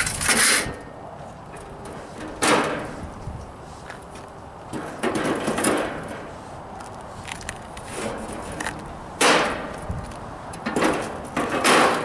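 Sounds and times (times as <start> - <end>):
metal grill parts scraping: 0.0 - 0.9, 1.5 - 3.4, 4.7 - 6.6, 7.8 - 9.8, 10.6 - 12.0.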